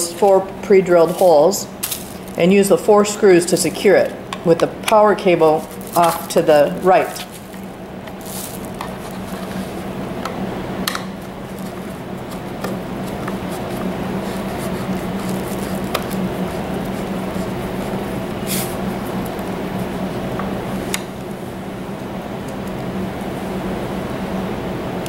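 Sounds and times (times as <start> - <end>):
steady low hum: 0.0 - 25.0
plastic rustling: 1.0 - 2.6, 5.4 - 9.9, 11.2 - 20.0.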